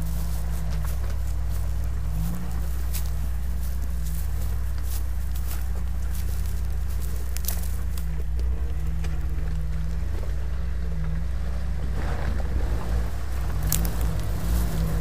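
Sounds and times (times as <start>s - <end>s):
car engine running: 0.0s - 15.0s.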